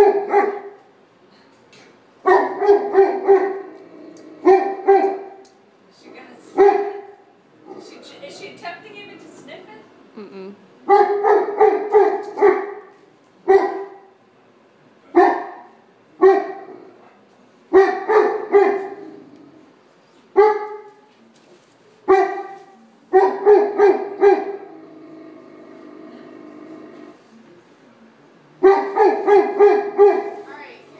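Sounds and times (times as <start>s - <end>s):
dog barking: 0.0s - 0.8s, 2.2s - 3.7s, 4.4s - 5.4s, 6.6s - 7.9s, 10.9s - 14.1s, 15.2s - 16.7s, 17.7s - 19.0s, 20.4s - 21.0s, 22.1s - 24.7s, 28.6s - 30.4s.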